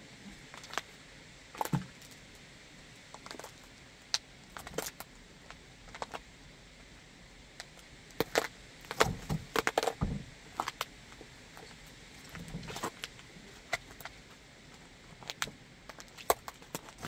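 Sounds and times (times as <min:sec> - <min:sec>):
cucumber cracking and crunching: 0:03.1 - 0:06.3, 0:07.6 - 0:14.2, 0:15.1 - 0:17.0.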